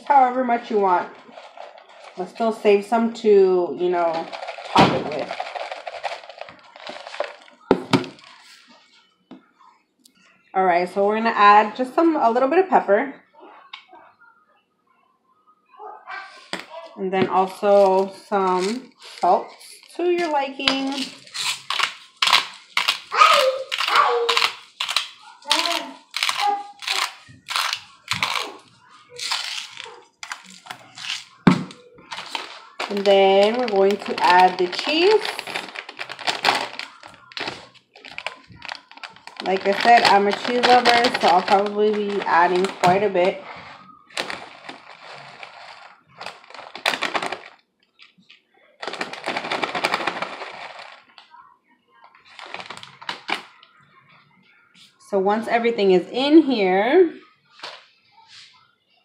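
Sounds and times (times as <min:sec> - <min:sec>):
plastic bag crinkling: 0:00.0 - 0:02.9, 0:03.8 - 0:08.8, 0:16.5 - 0:51.3, 0:52.2 - 0:53.7
salt grinder crunching: 0:20.7 - 0:28.6
cheese shreds pattering into bowl: 0:32.0 - 0:47.5.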